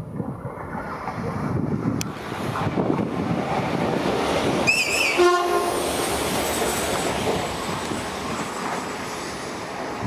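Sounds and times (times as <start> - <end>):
trains rumbling past: 0.0 - 10.0
train horn blast: 4.7 - 5.9.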